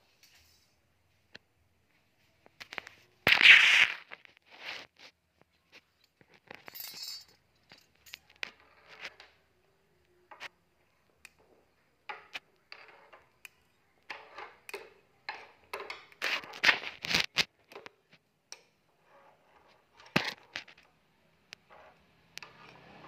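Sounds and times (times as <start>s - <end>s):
stick scraping tile floor: 2.6s - 5.2s, 7.9s - 9.5s, 11.3s - 18.2s, 18.9s - 23.0s.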